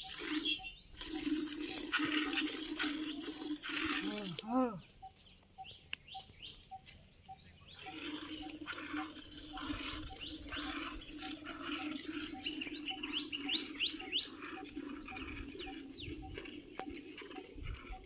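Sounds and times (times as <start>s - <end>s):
milk squirting into steel pot: 0.0s - 4.4s.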